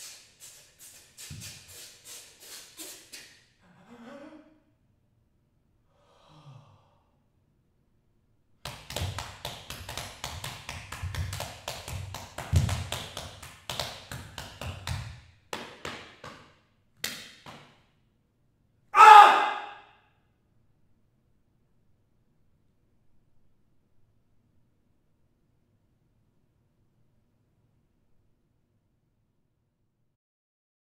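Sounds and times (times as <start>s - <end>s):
fists drumming on chest: 8.7s - 16.4s
loud vocal cry: 19.0s - 19.9s.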